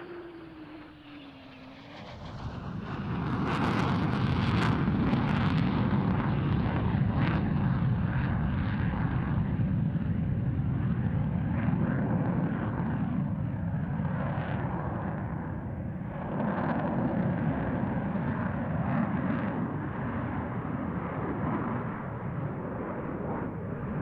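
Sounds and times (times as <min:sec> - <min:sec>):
loud jet roar: 0:00.0 - 0:12.8.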